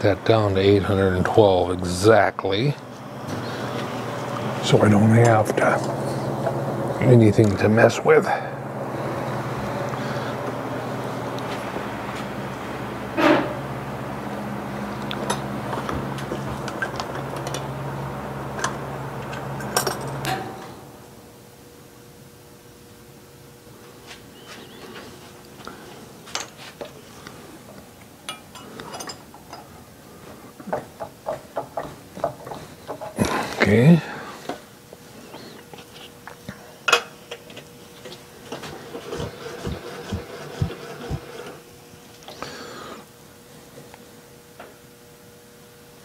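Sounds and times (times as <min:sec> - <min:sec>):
milling machine motor hum: 0:02.8 - 0:21.3, 0:37.5 - 0:43.3
metal tools clinking on steel table: 0:19.6 - 0:20.4, 0:28.3 - 0:29.7.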